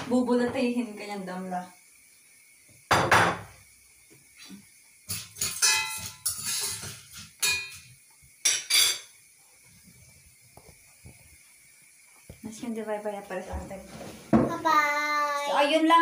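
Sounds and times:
pot and utensils clattering: 5.1s - 9.2s.

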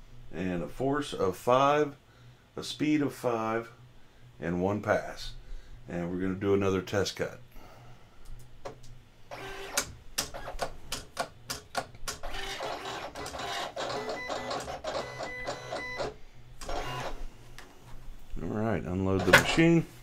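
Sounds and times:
cutting machine clicking and whirring: 9.3s - 17.2s, 19.1s - 19.7s.

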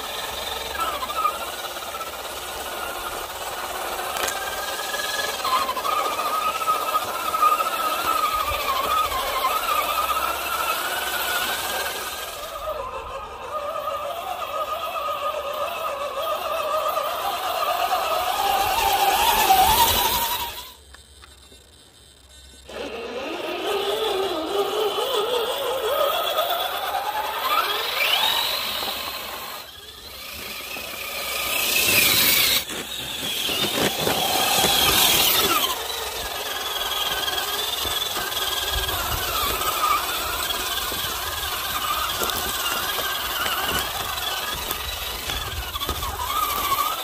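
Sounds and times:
toy car motor whining: 0.0s - 47.0s.

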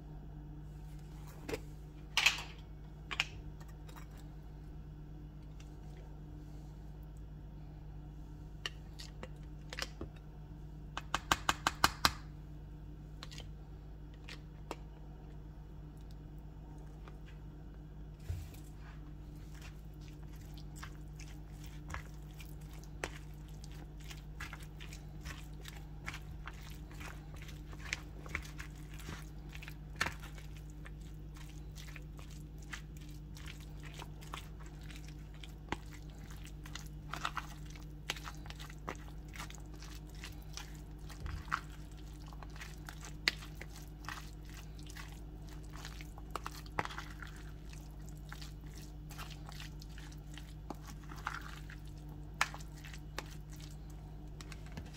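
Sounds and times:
steady low hum: 0.0s - 54.9s
wet squelching: 18.2s - 54.9s.

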